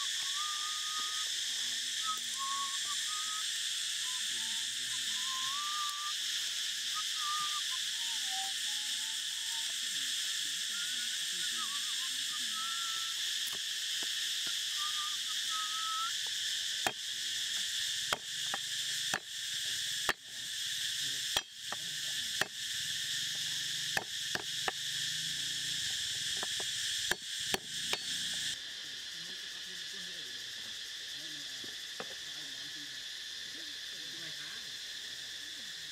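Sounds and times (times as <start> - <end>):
insects droning: 0.0 - 35.9
cleaver chopping on wooden board: 21.4 - 21.8.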